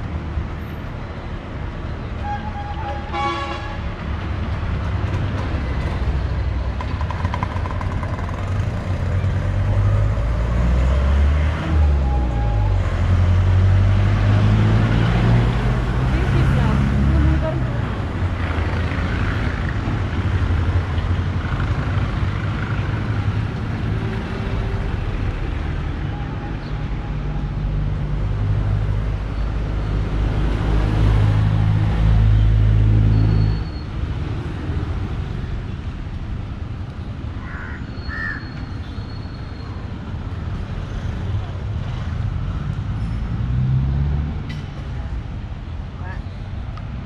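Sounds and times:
road traffic engines rumbling: 0.0s - 47.0s.

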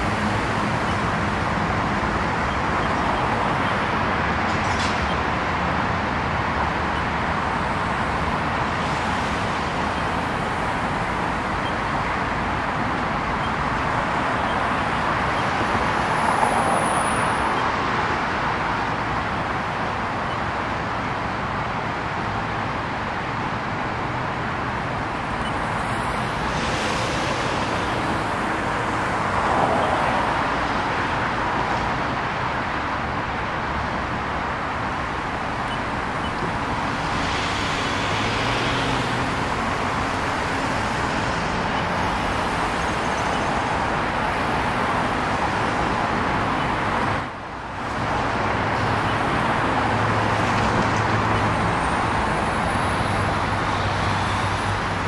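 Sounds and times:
road traffic passing: 0.0s - 55.0s.

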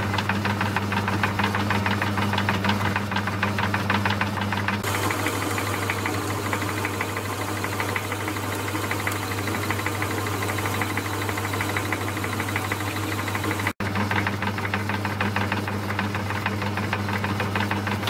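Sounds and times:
lathe drive clatter: 0.0s - 13.8s
lathe motor hum: 4.8s - 13.8s.

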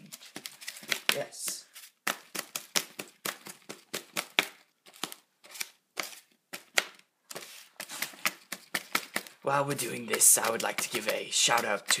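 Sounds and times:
knife chopping carrots on cardboard: 6.0s - 12.0s.

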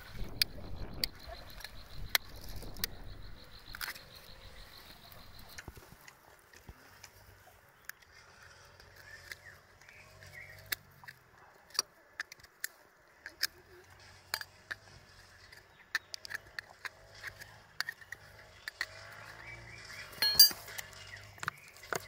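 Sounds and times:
steel rod prying oyster shell: 20.2s - 22.0s.

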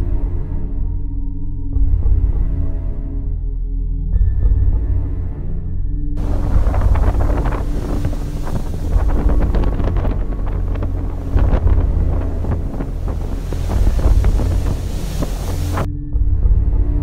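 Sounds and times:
waves splashing against hull: 6.2s - 15.9s
wind buffeting microphone: 6.2s - 15.9s.

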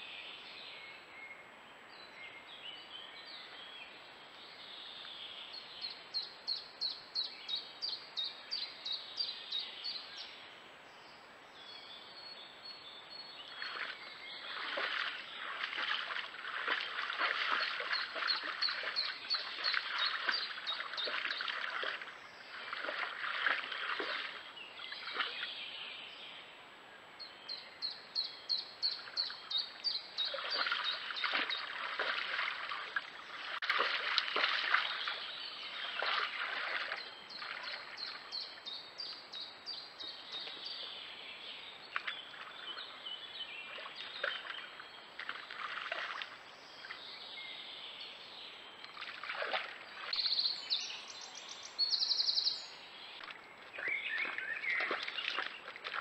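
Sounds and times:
birds calling faintly: 0.0s - 56.0s
water splashing and sloshing: 13.4s - 25.6s, 28.8s - 39.4s, 40.1s - 47.2s, 48.8s - 50.4s, 53.1s - 56.0s.

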